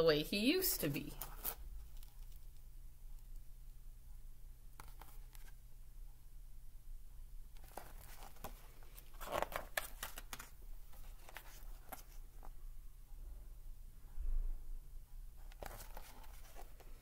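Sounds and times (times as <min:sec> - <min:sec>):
paper rustling page turning: 0:01.1 - 0:02.6, 0:04.8 - 0:05.6, 0:07.6 - 0:12.5, 0:15.4 - 0:17.0.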